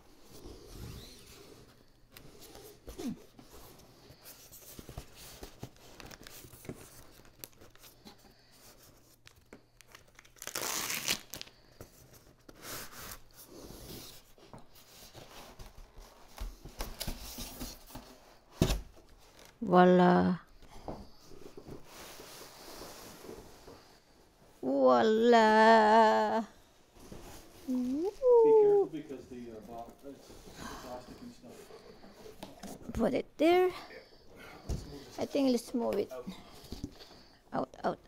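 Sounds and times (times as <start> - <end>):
packaging ripping: 9.3 - 11.6.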